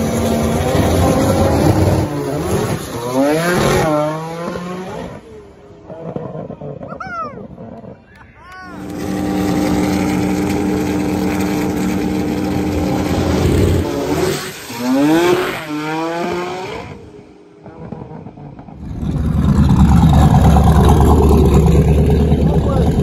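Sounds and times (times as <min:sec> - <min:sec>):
drag cars accelerating: 0:00.0 - 0:23.0
loud low engine rumble: 0:08.7 - 0:14.7, 0:17.1 - 0:23.0.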